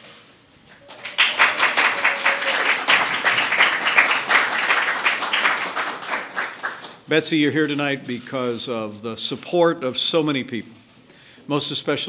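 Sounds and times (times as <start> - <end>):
audience applauding: 0.8 - 7.0.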